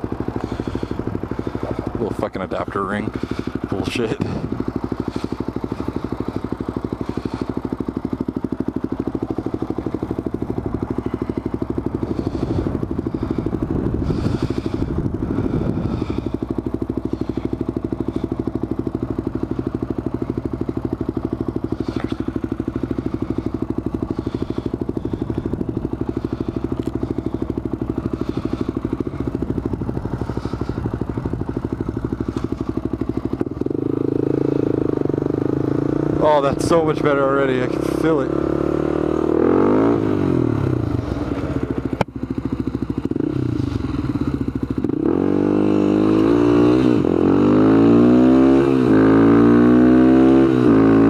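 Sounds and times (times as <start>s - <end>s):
atv engine running at low speed: 0.0s - 51.0s.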